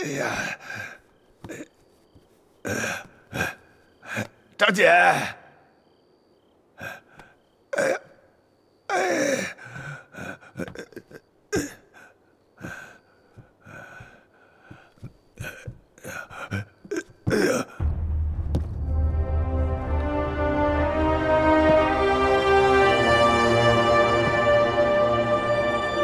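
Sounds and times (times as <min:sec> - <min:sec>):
deep low drone: 0:17.8 - 0:26.0
dramatic orchestral music: 0:17.8 - 0:26.0.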